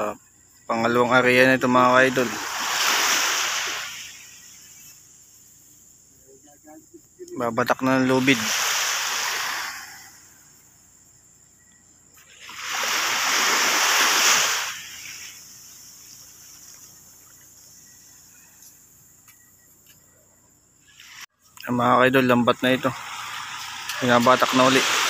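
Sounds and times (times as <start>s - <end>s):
sea waves washing up shore: 0.8s - 5.2s, 7.7s - 10.6s, 12.2s - 18.4s, 22.1s - 25.0s.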